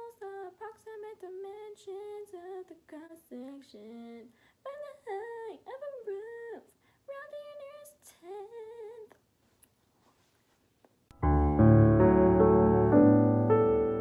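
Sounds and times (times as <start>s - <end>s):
loud piano music: 11.1s - 14.0s.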